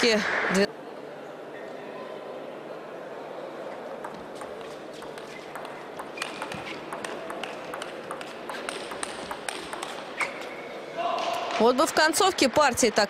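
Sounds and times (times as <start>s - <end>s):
table tennis ball clicks: 4.0s - 10.1s.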